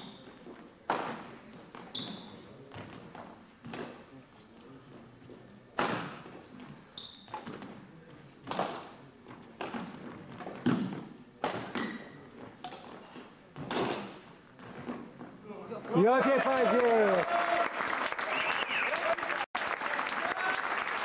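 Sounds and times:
shoe squeaks: 0:00.0 - 0:00.4, 0:01.8 - 0:04.2, 0:06.4 - 0:07.6, 0:09.3 - 0:09.8, 0:11.7 - 0:15.4.

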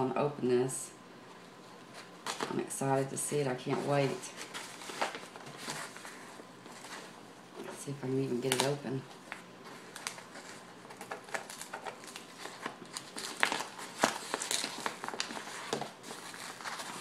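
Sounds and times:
plastic packaging crinkling: 0:02.0 - 0:02.6, 0:03.6 - 0:17.0.

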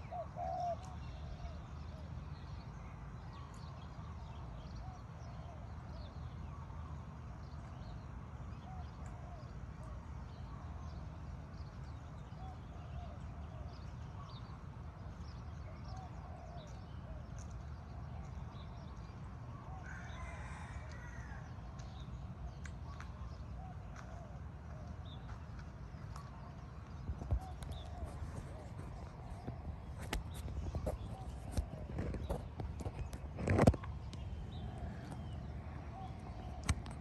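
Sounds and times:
rooster crowing: 0:19.8 - 0:21.4
birds chirping and calling: 0:21.8 - 0:37.0
steady low rumble: 0:25.0 - 0:37.0.

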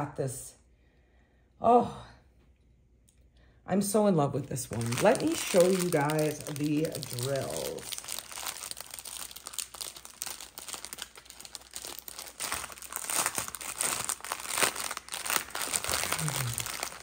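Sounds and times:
plastic bag crinkling: 0:04.4 - 0:17.0.

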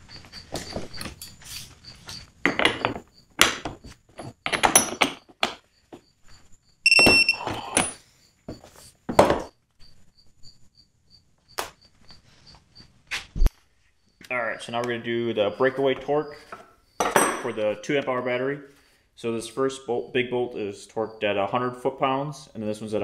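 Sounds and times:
torque meter beep: 0:06.8 - 0:07.6.

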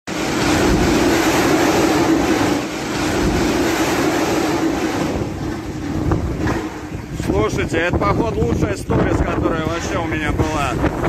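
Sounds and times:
heavy rain: 0:00.1 - 0:07.4
strong wind: 0:00.1 - 0:11.0
wind buffeting microphone: 0:00.1 - 0:11.0.

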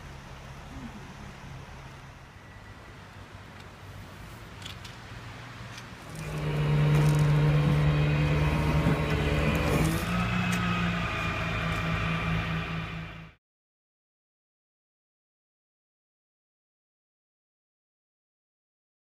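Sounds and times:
faint outdoor noise: 0:00.0 - 0:13.4
tow truck engine and hydraulics hum: 0:00.0 - 0:13.4.

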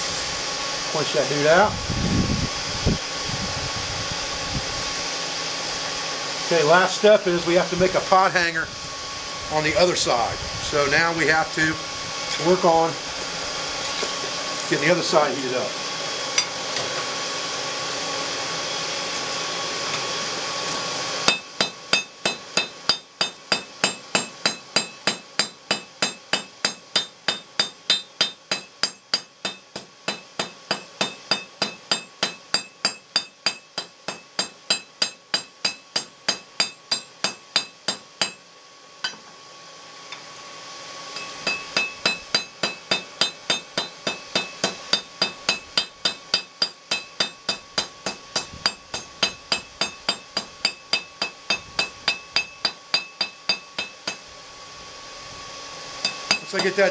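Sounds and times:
hammer ringing on anvil: 0:21.3 - 0:38.4, 0:41.2 - 0:54.2, 0:56.0 - 0:56.8.

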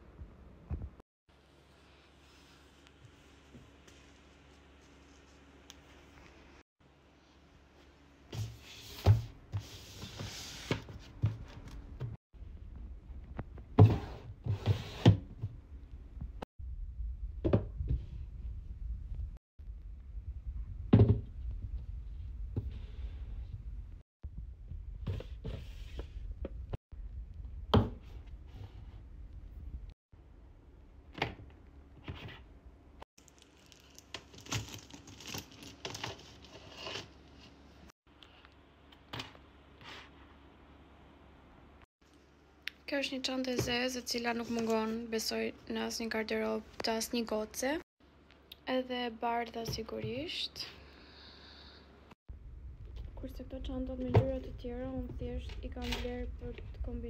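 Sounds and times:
handbags rustling and knocking: 0:33.3 - 0:37.0.

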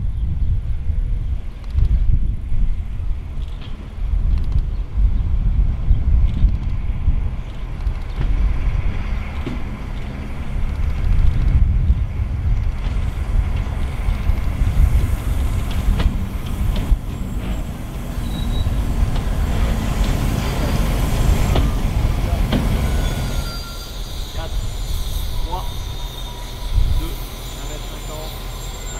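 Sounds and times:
diesel locomotives rumbling past: 0:00.0 - 0:28.9
sharp clicks: 0:03.4 - 0:04.7.

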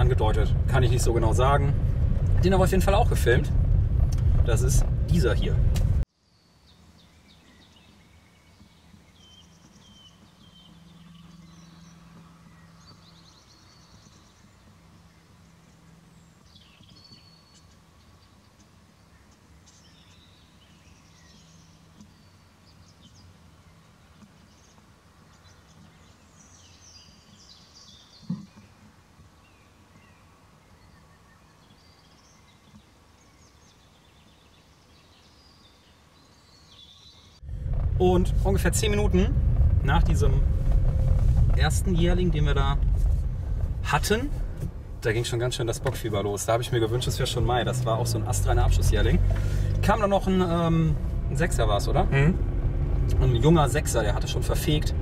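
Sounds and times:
faint birdsong: 0:04.5 - 0:39.3, 0:39.9 - 0:52.4
sharp knock: 0:28.2 - 0:28.6
low steady hum: 0:37.4 - 0:55.0.

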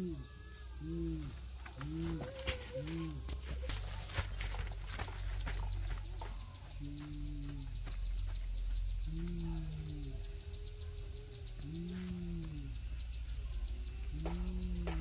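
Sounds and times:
animal calling: 0:00.0 - 0:04.1.

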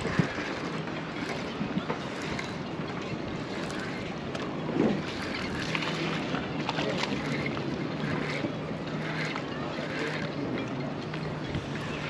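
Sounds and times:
wind noise on microphone: 0:00.0 - 0:06.4.

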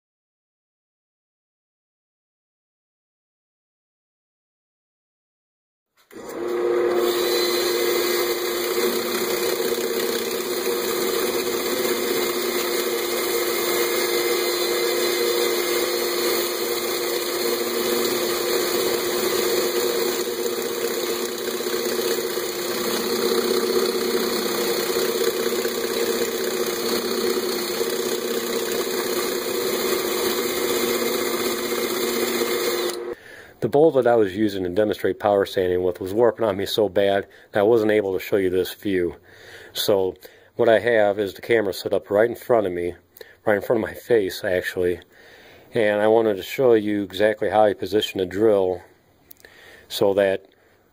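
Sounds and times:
motor hum: 0:06.1 - 0:33.2.

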